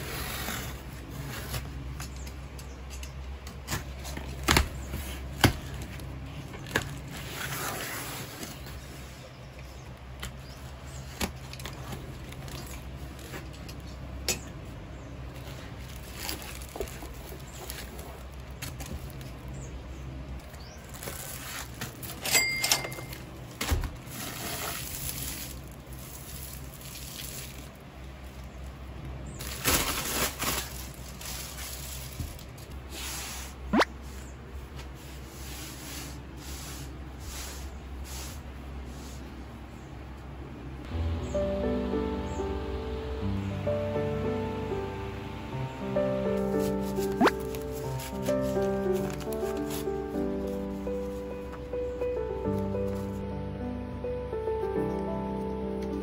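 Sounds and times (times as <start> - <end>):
cardboard and paper rustling: 0.0 - 2.6, 3.3 - 14.0, 15.3 - 19.7, 20.3 - 28.7, 29.4 - 33.6, 46.3 - 51.6
steady low hum: 33.5 - 55.2.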